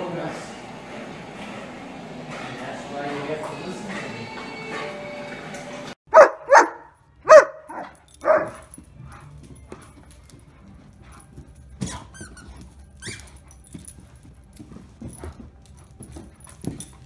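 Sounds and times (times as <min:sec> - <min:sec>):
dog barking deeply: 0:06.1 - 0:08.7
dog playing knocks and scuffles: 0:07.7 - 0:17.0.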